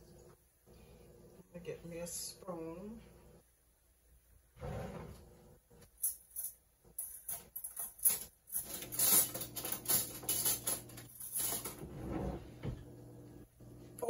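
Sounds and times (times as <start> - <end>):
cutlery clinking in a drawer: 5.9 - 11.9.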